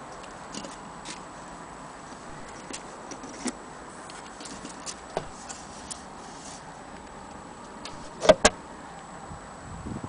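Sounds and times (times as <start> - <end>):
sharp knocks: 8.1 - 8.6.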